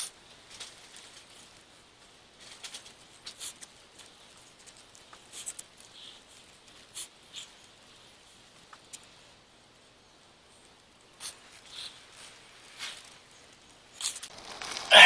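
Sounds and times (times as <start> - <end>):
rubber tape rustling and crackling: 0.0 - 7.5, 11.2 - 15.0.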